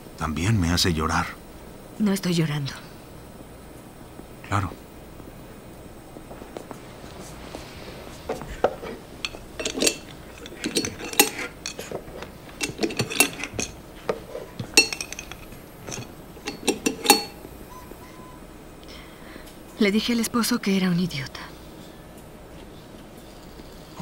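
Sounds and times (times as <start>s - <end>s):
glass tubes clinking and clicking: 8.6s - 17.5s.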